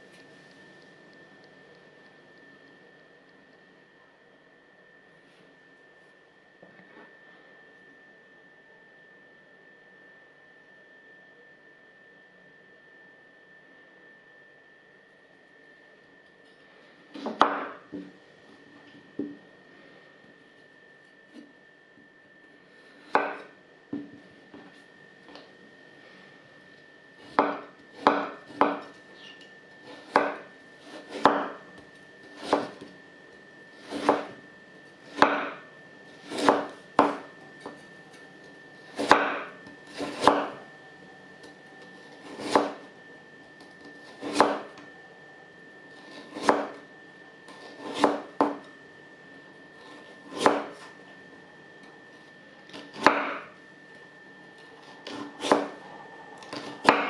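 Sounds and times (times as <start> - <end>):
knife slicing carrot: 32.3 - 32.8, 33.8 - 34.4, 36.1 - 37.8, 38.8 - 40.6, 42.0 - 42.8, 47.5 - 48.6.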